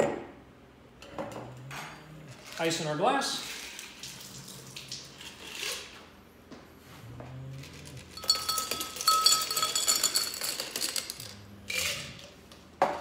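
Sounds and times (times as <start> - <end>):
glass ringing: 8.2 - 10.9
ice cubes clinking into glass: 8.2 - 12.1.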